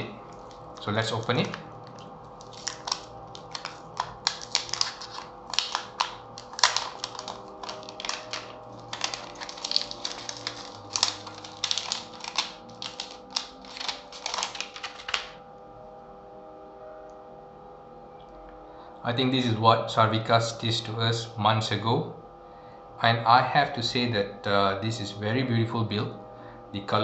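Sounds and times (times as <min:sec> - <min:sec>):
plastic film crinkling: 0:00.3 - 0:15.4.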